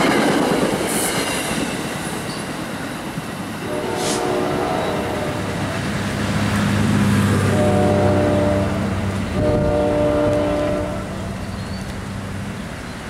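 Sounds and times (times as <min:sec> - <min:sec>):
train rumbling: 0:00.0 - 0:13.0
locomotive horn blasts: 0:03.6 - 0:05.6, 0:07.4 - 0:11.3.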